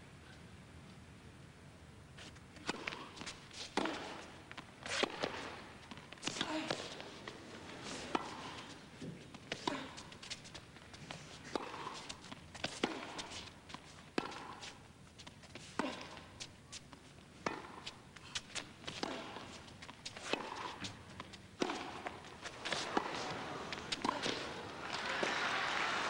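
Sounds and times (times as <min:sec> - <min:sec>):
racket striking tennis ball: 0:02.6 - 0:07.2, 0:11.5 - 0:14.7, 0:17.4 - 0:17.9, 0:20.1 - 0:25.4
ball bouncing on court: 0:20.3 - 0:25.5.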